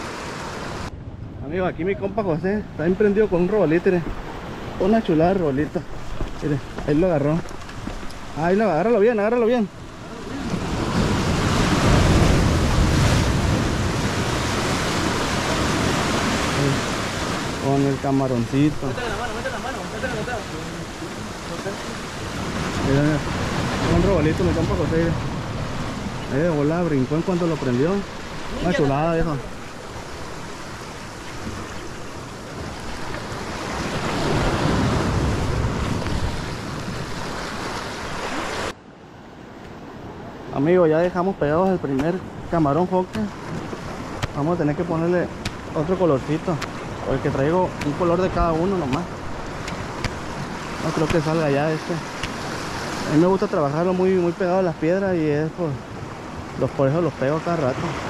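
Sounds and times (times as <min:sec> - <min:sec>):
surf breaking on rocks: 0:02.2 - 0:38.8, 0:40.6 - 0:58.0
wind buffeting microphone: 0:09.7 - 0:17.6, 0:27.8 - 0:38.5.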